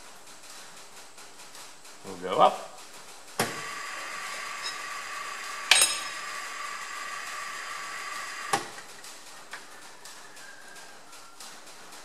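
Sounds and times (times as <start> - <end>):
milling machine motor whine: 3.6 - 8.7.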